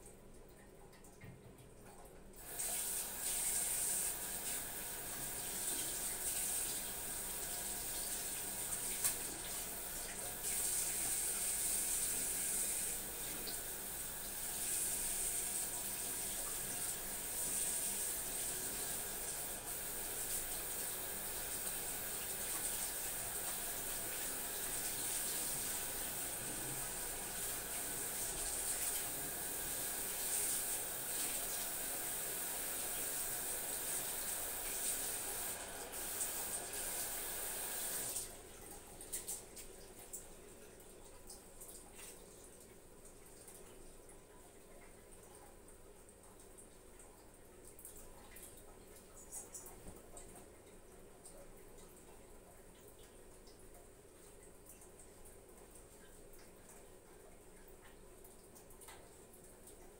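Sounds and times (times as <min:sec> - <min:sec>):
water running into basin: 0:00.0 - 0:59.9.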